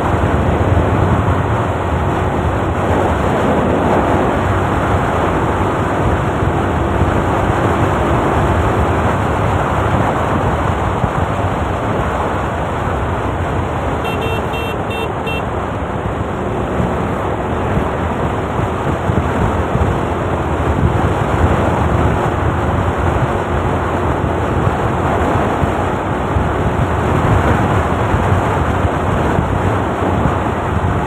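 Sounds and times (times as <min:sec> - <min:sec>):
wind rushing over microphone: 0:00.0 - 0:31.0
short high beeps: 0:14.1 - 0:15.5.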